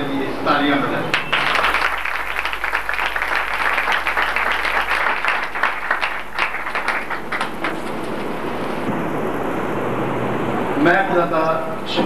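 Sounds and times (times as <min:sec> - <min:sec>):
audience applauding: 0:01.1 - 0:08.9.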